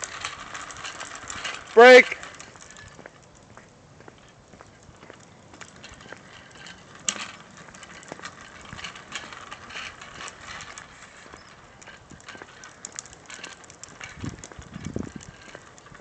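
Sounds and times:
footsteps on concrete: 0:02.0 - 0:09.3.

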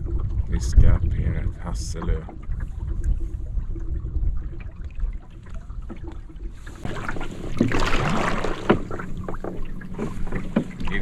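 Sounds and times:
wind rumble on microphone: 0:00.0 - 0:11.0
oar splashing through water: 0:01.8 - 0:11.0
wooden knocks: 0:06.9 - 0:11.0.

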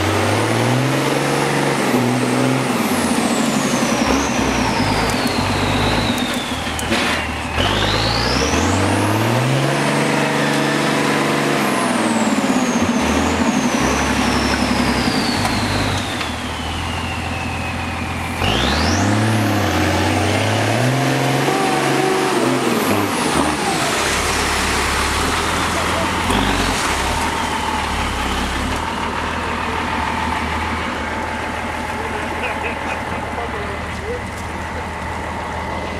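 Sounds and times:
truck engine revving: 0:00.0 - 0:35.9
high turbo whistle: 0:16.1 - 0:18.7.

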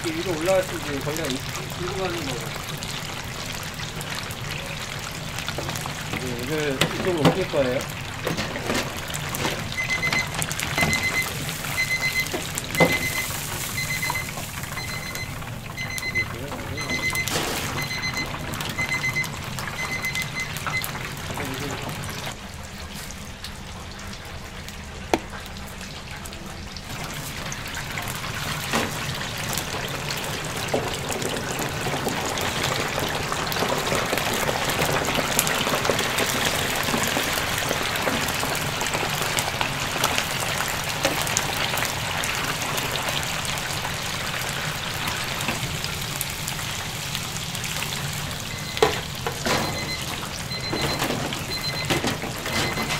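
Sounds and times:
chicken deep-frying in oil: 0:00.0 - 0:52.9
short electronic beeps: 0:09.8 - 0:20.9, 0:49.6 - 0:52.9.

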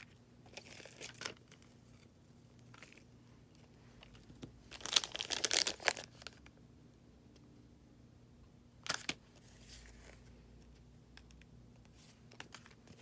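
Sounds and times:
plastic packet crinkling: 0:00.5 - 0:01.7, 0:04.7 - 0:06.4.

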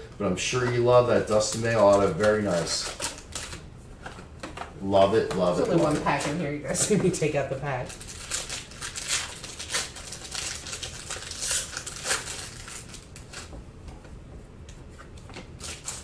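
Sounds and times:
wrapper crinkling and tearing: 0:01.2 - 0:03.6, 0:07.8 - 0:13.6, 0:15.4 - 0:16.0.

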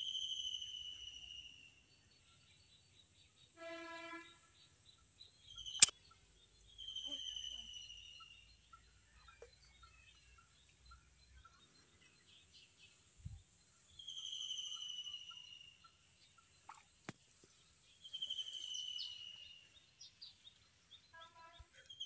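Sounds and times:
small chirps: 0:05.6 - 0:06.1.

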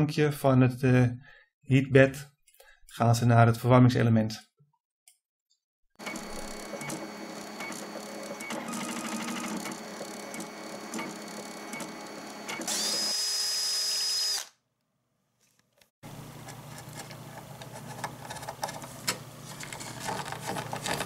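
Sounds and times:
stepper motors buzzing and whining: 0:06.0 - 0:14.5.

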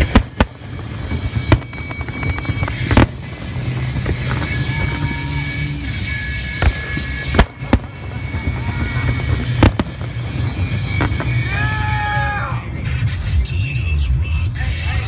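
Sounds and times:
fireworks booming overhead: 0:00.0 - 0:13.3.

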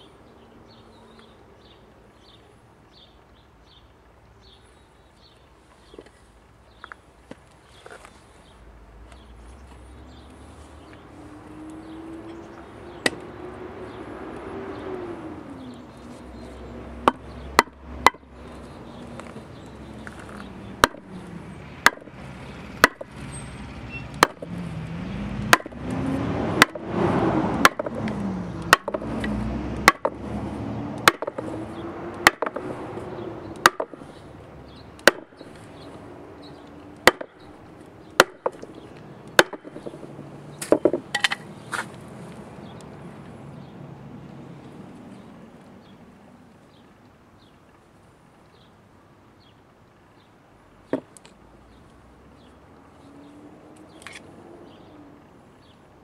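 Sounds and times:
sledgehammer striking wooden board: 0:17.0 - 0:18.2, 0:20.8 - 0:21.1, 0:21.8 - 0:22.1, 0:22.8 - 0:23.1, 0:24.2 - 0:24.5, 0:25.5 - 0:25.8, 0:26.6 - 0:26.8, 0:27.6 - 0:28.0, 0:28.7 - 0:29.1, 0:29.8 - 0:30.2, 0:31.0 - 0:31.5, 0:32.2 - 0:32.7, 0:33.6 - 0:34.0, 0:35.0 - 0:35.3, 0:37.0 - 0:37.4, 0:38.2 - 0:38.6, 0:39.4 - 0:40.0, 0:40.6 - 0:41.4.

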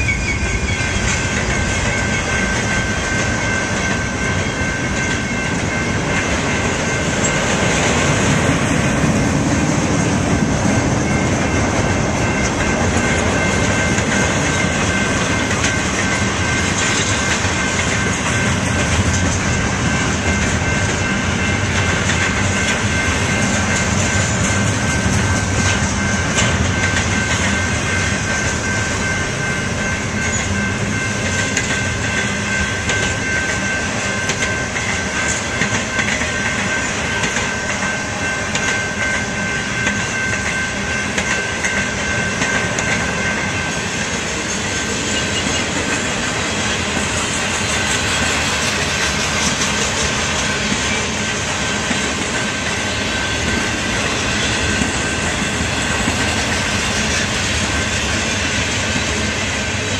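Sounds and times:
high wheel squeal: 0:00.0 - 0:08.2, 0:43.4 - 0:58.4
freight train rumble: 0:00.0 - 0:59.9.

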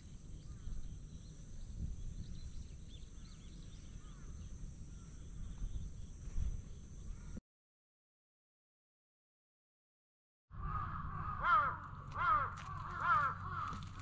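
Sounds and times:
small birds chirping: 0:00.0 - 0:07.4.

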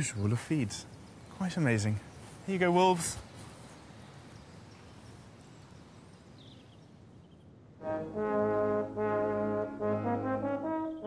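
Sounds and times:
faint background hiss: 0:00.0 - 0:11.0
brass background music: 0:07.8 - 0:11.0.

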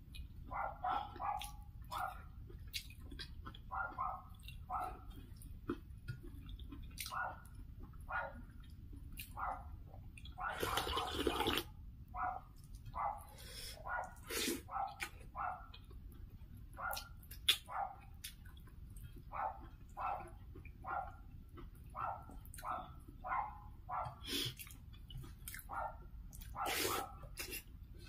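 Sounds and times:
eating by hand: 0:00.0 - 0:11.7, 0:12.5 - 0:28.0
dog barking: 0:00.5 - 0:02.3, 0:03.7 - 0:05.1, 0:07.1 - 0:07.5, 0:08.1 - 0:08.4, 0:09.3 - 0:09.8, 0:10.4 - 0:11.4, 0:12.1 - 0:15.8, 0:16.8 - 0:18.2, 0:19.3 - 0:21.3, 0:21.9 - 0:24.2, 0:25.6 - 0:27.4.

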